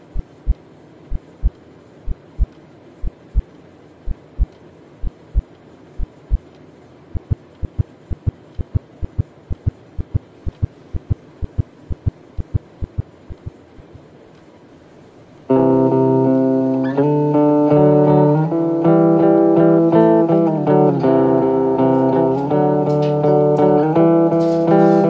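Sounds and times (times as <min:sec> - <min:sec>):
heartbeat thumps: 0:00.0 - 0:03.5, 0:04.1 - 0:06.5, 0:07.2 - 0:13.5.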